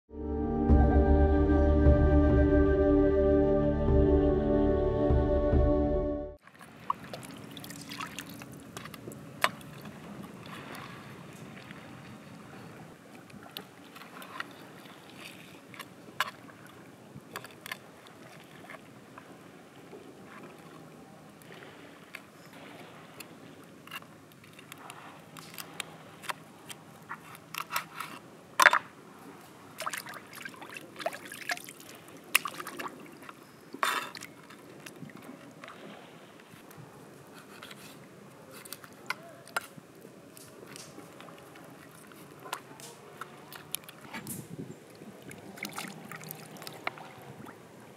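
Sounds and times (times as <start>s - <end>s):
shallow water washing: 6.4s - 47.9s
cleaver scraping and tapping fish: 23.8s - 28.8s, 37.3s - 39.8s.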